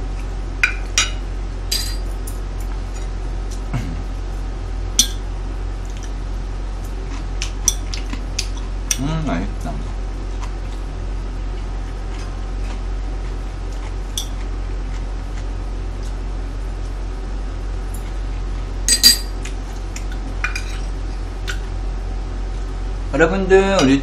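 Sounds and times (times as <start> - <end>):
low hum: 0.0 - 6.9, 18.8 - 19.6.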